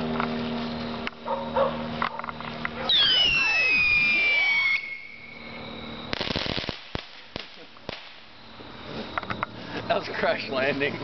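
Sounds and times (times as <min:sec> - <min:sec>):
pitched drone: 0:01.8 - 0:06.1
firework whistle falling in pitch: 0:02.9 - 0:05.6.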